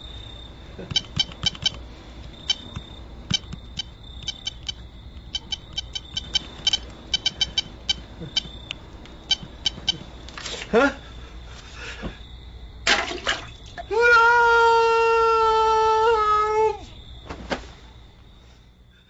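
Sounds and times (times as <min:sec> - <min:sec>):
phone keys clicking: 0:00.9 - 0:10.1.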